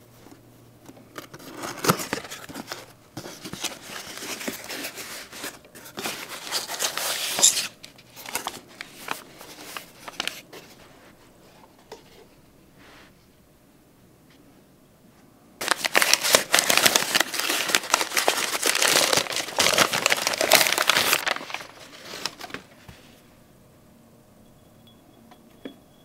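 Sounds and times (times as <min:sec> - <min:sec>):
tissue paper crinkling: 0:01.4 - 0:11.2, 0:15.6 - 0:23.1.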